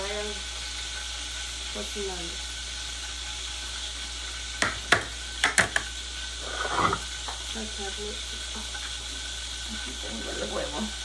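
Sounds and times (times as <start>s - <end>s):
fish sizzling in oil: 0.0s - 11.0s
brief scrape: 6.4s - 7.1s.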